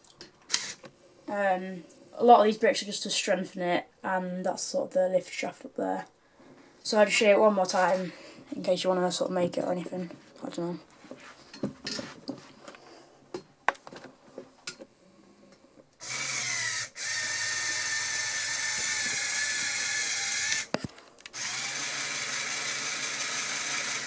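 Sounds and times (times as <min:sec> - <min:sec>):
small electric motor geared whine: 0:16.0 - 0:24.0.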